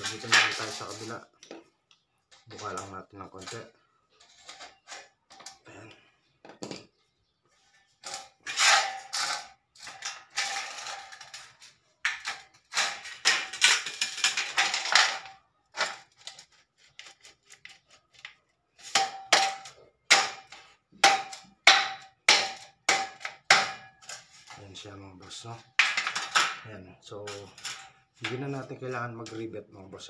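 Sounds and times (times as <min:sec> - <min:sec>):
metal channels scraping and rattling: 0:00.0 - 0:01.3, 0:08.0 - 0:17.6, 0:24.0 - 0:29.7.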